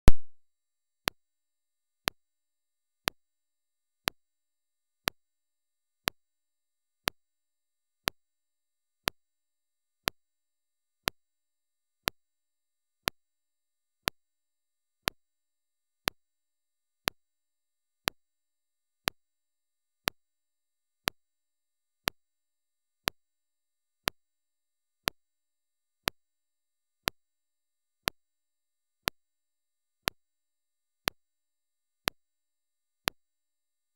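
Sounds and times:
sharp electronic tick: 0.0s - 0.3s.

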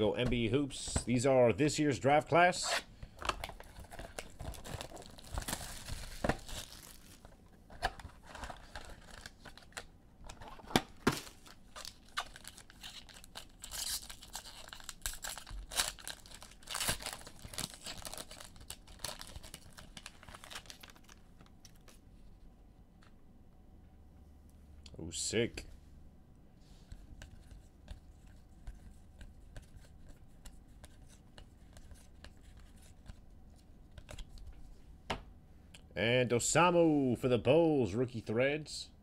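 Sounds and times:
wrapper tearing and crinkling: 3.6s - 7.3s, 11.2s - 22.0s.

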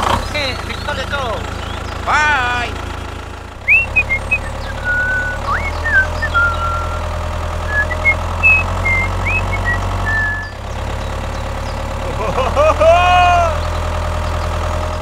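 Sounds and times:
tractor engine running: 0.0s - 15.0s
high chirps and whistled glides: 3.6s - 10.6s.

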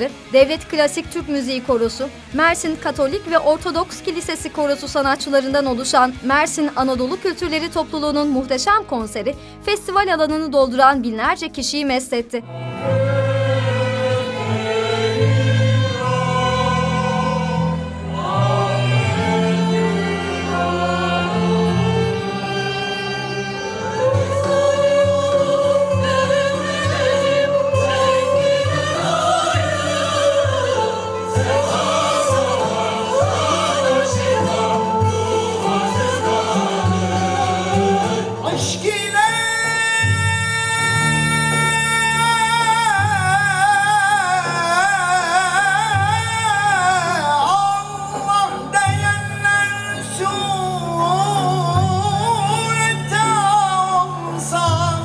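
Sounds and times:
string orchestra playing: 12.4s - 39.2s
mixed choir singing: 12.7s - 39.4s
male solo singer with vibrato: 12.8s - 55.0s.

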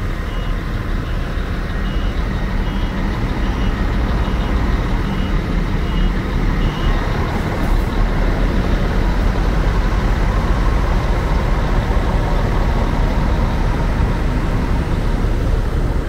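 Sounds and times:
coach diesel engine driving past: 0.0s - 16.0s.

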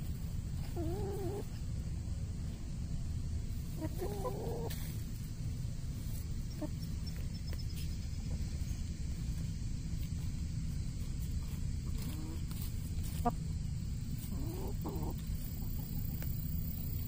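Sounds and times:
wavering low calls: 0.0s - 2.0s, 3.5s - 8.7s, 11.8s - 17.0s
chickens foraging: 0.0s - 17.0s
steady low rumble: 0.0s - 17.0s.

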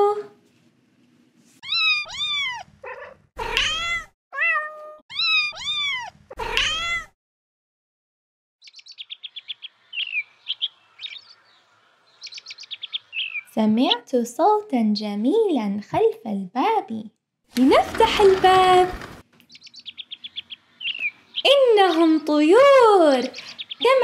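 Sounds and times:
cat meowing: 1.6s - 7.1s
bird chirping rapidly: 8.6s - 13.6s, 19.4s - 22.4s, 23.2s - 24.0s.

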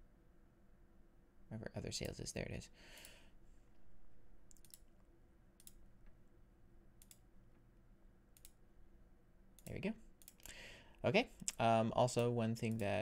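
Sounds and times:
computer mouse clicks: 4.5s - 5.8s, 7.0s - 7.2s, 8.3s - 8.6s, 9.6s - 10.6s.

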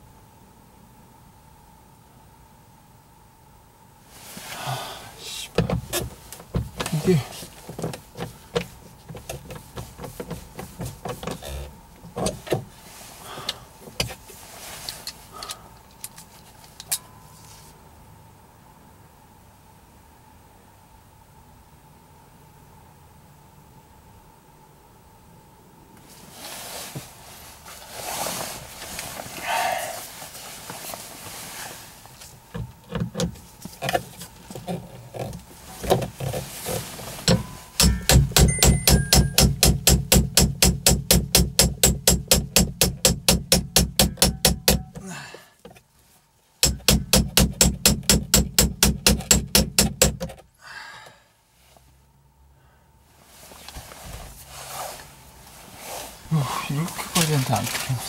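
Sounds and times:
loud regular knocking: 37.3s - 45.0s, 46.6s - 50.2s.

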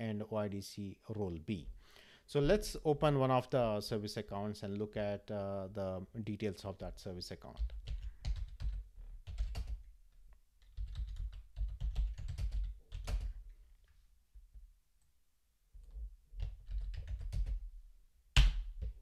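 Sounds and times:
keyboard typing: 7.6s - 9.8s, 10.6s - 13.4s, 15.8s - 17.6s.

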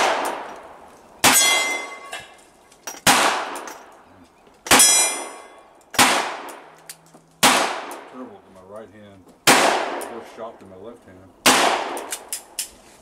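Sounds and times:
gunshots: 0.0s - 0.5s, 3.0s - 3.7s, 4.7s - 5.3s, 5.9s - 6.7s, 7.4s - 8.3s, 9.4s - 10.4s, 11.4s - 12.3s
steel target clanging: 1.2s - 3.9s, 4.7s - 5.6s.

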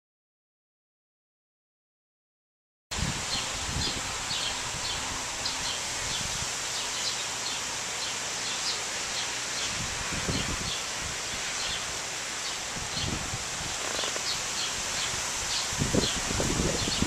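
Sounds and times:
wind buffeting microphone: 2.9s - 6.7s, 9.6s - 17.0s
wind in trees: 2.9s - 17.0s
small birds chirping: 3.2s - 17.0s.

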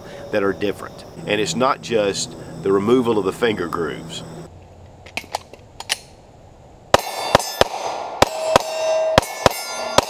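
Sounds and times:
pistol shots: 6.9s - 10.0s.

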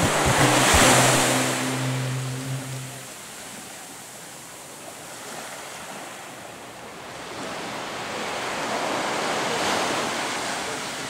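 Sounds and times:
small waves on sandy beach: 4.9s - 11.0s.

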